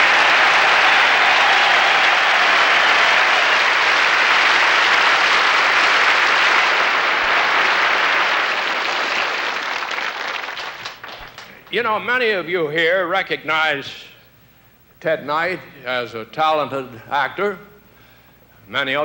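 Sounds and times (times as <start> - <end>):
audience applauding: 0.0 - 11.7.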